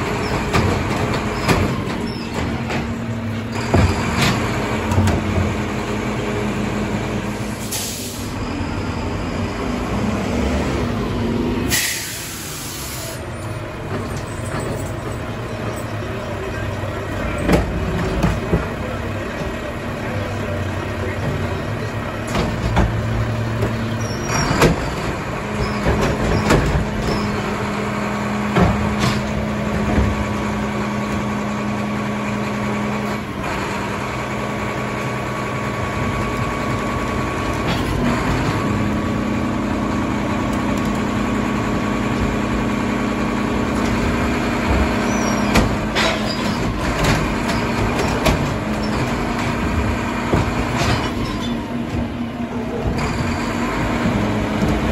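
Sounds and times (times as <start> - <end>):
garbage truck diesel engine: 0.0 - 54.9
recycling clattering into hopper: 28.4 - 30.4.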